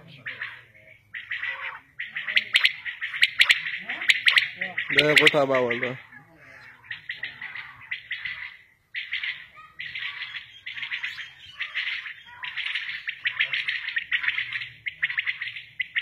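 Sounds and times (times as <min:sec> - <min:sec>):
quails calling: 0:00.0 - 0:16.0.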